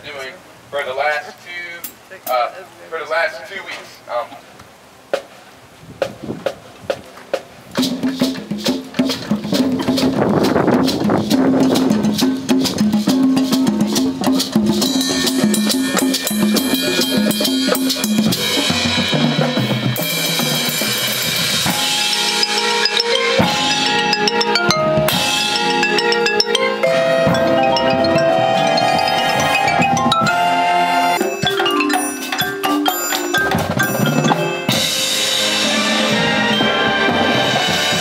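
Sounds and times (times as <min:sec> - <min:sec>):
drum set: 0:05.1 - 0:38.0
auxiliary percussion: 0:06.0 - 0:38.0
bass drum: 0:07.8 - 0:22.0
marimbas and vibraphone: 0:08.2 - 0:38.0.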